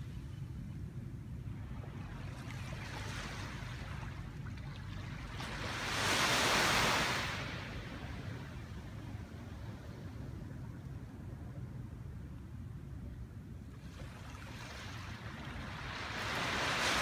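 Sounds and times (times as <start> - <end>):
steady low rumble: 0.0 - 6.1, 7.0 - 16.8
small waves washing onto beach: 1.6 - 8.6, 13.8 - 17.0.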